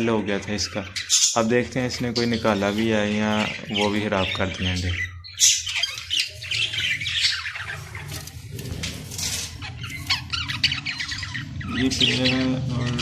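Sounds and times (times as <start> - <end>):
budgerigars chattering and squawking: 0.0 - 13.0.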